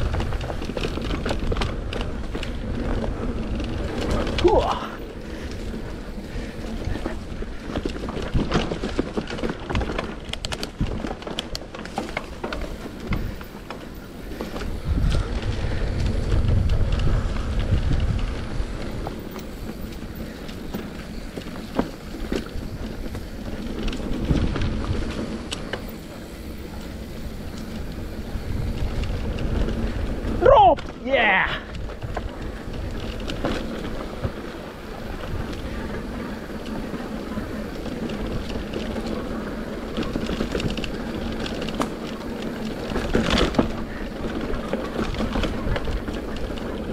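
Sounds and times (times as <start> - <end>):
bike rattles and knocks: 0.0 - 46.9
tyre and wind rumble: 0.0 - 46.9
wind buffeting microphone: 0.0 - 46.9.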